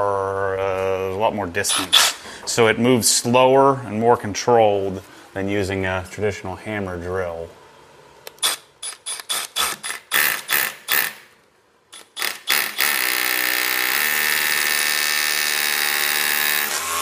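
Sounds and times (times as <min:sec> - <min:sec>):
rotary hammer drilling into block: 0:08.4 - 0:11.3, 0:11.9 - 0:17.0.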